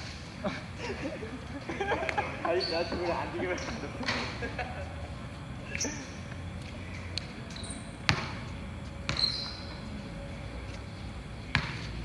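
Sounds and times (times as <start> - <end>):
basketball bouncing on hard court: 8.1 - 8.4, 9.1 - 9.6, 11.5 - 11.9
short high squeak: 9.1 - 9.8.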